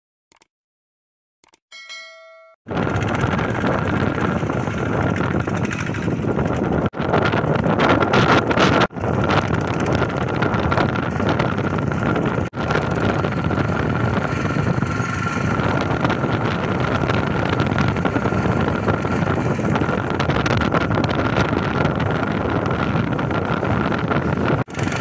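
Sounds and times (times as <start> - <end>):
diesel engine running under load: 2.7 - 25.0
wind buffeting microphone: 2.7 - 25.0.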